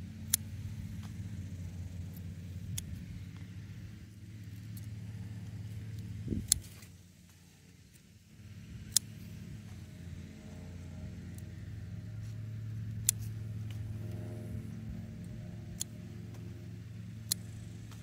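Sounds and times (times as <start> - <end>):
low mechanical hum: 0.0 - 18.0
scissors snipping stems: 2.0 - 3.5, 4.5 - 7.4, 8.8 - 10.0, 11.3 - 14.3, 15.2 - 16.6, 17.2 - 18.0.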